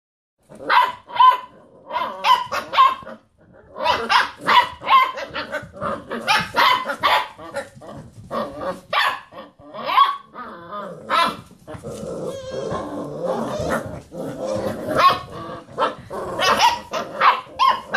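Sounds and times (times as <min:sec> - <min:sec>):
puppies barking and howling: 0:12.2 - 0:17.9.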